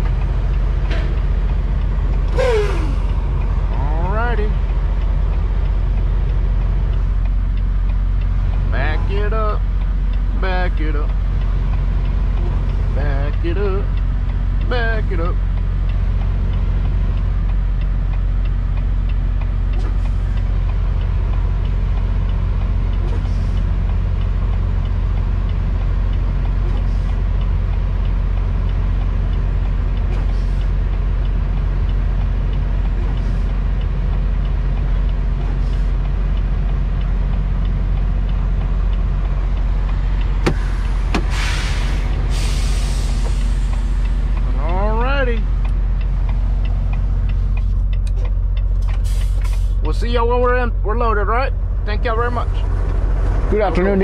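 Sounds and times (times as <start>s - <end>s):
diesel truck engine droning: 0.0s - 54.0s
air brakes hissing: 2.3s - 3.2s, 40.4s - 44.4s, 48.8s - 49.8s.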